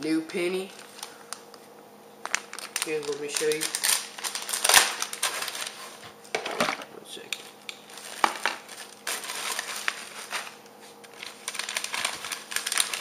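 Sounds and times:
plastic bags crinkling: 0:00.6 - 0:01.6, 0:02.2 - 0:06.0, 0:07.8 - 0:13.0.

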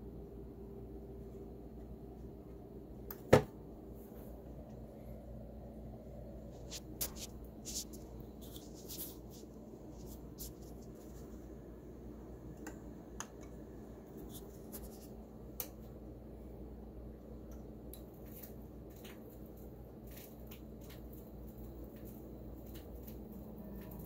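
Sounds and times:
low steady hum: 0:00.0 - 0:24.0
vinyl record crackle and pops: 0:06.5 - 0:11.6, 0:17.5 - 0:24.0.

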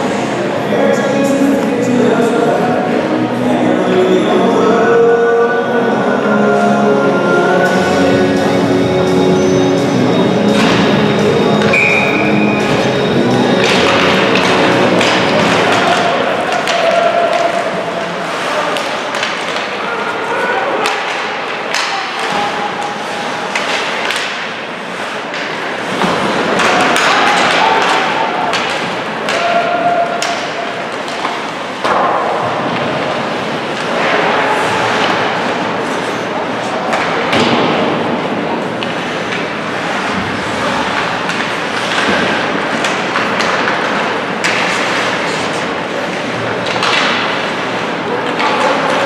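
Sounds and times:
crowd noise: 0:00.0 - 0:49.0
hockey sticks and puck hitting boards: 0:10.4 - 0:19.9, 0:20.7 - 0:36.2, 0:36.8 - 0:49.0.

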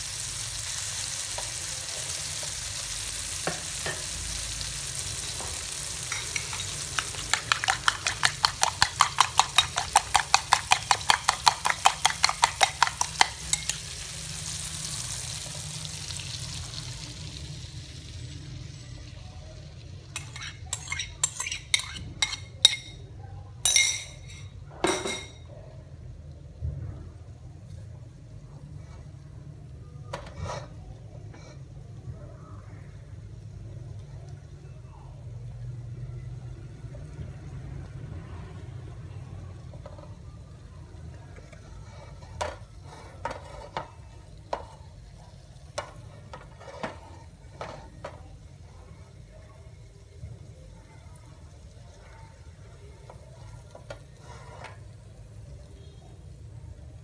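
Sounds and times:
food frying in a pan: 0:00.0 - 0:57.0
utensils tapping kitchenware: 0:06.0 - 0:13.9, 0:20.1 - 0:25.4.

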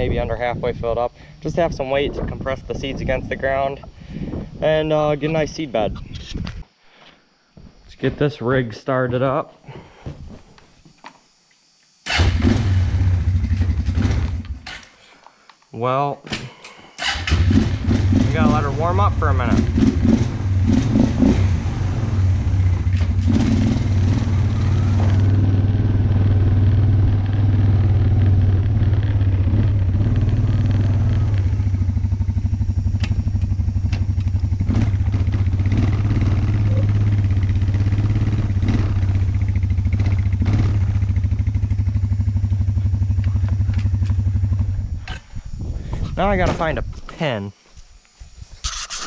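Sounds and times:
quad engine running: 0:17.2 - 0:45.1
sharp clicks and knocks: 0:33.0 - 0:34.4.

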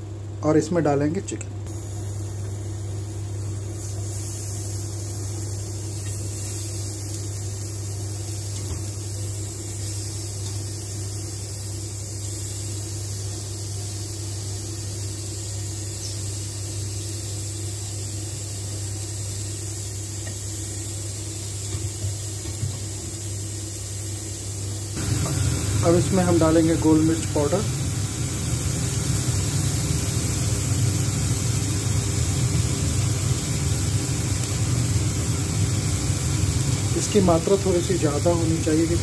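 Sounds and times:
fan-like hiss: 0:00.0 - 0:39.0
induction cooktop electrical hum: 0:00.0 - 0:39.0.

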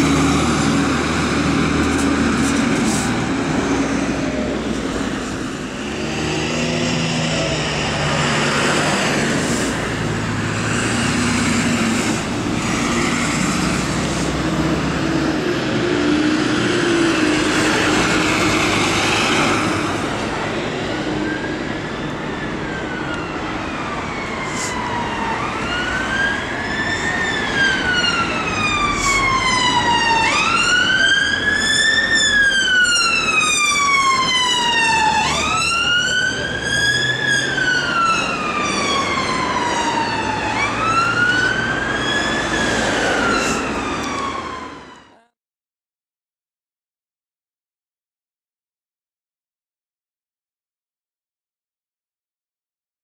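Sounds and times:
siren wailing: 0:20.7 - 0:45.3.

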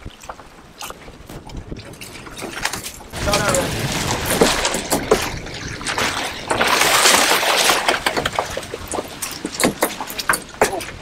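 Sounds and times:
knocks and clatter from boat: 0:00.0 - 0:11.0
water splashing beside boat hull: 0:00.0 - 0:11.0
fish thrashing at surface: 0:02.5 - 0:10.6.

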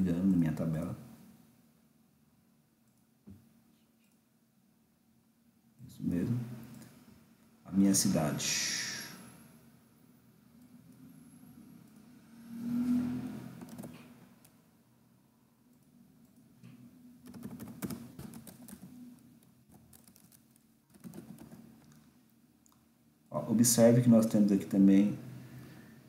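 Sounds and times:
typing on computer keyboard: 0:13.6 - 0:14.1, 0:17.2 - 0:19.0, 0:19.7 - 0:22.0.

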